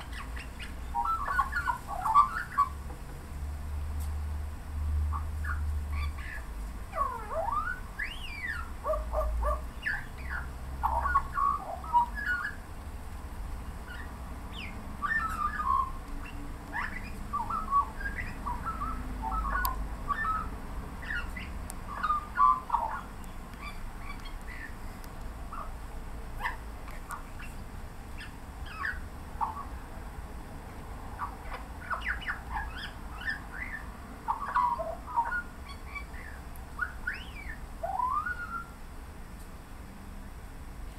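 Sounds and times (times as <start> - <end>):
magpie warbling song: 0.0 - 2.8, 5.1 - 12.7, 13.9 - 24.8, 28.2 - 29.8, 31.2 - 38.8.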